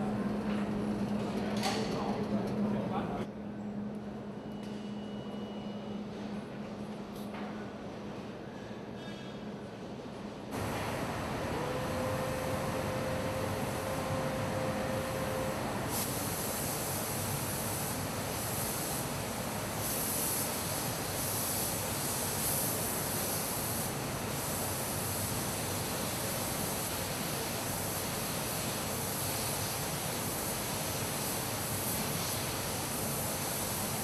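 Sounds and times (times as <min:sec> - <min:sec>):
paint booth air rushing: 0:10.5 - 0:34.0
spray gun hissing: 0:10.6 - 0:34.0.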